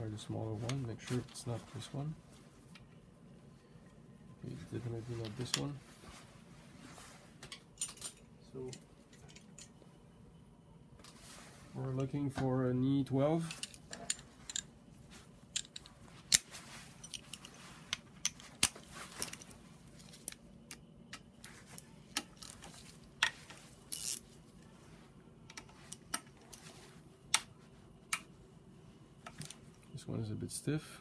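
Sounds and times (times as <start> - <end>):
metal sockets and ratchet clinking: 13.4 - 14.7, 15.5 - 19.5.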